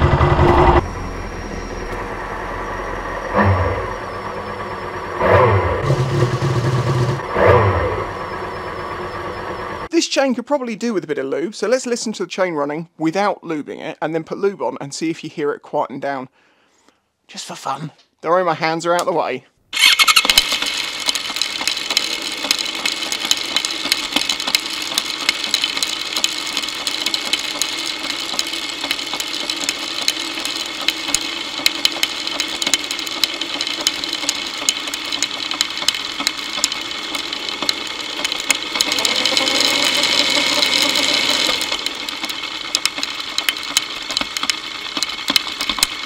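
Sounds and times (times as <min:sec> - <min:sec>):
motorcycle chain clicking and rattling: 0:19.8 - 0:46.0.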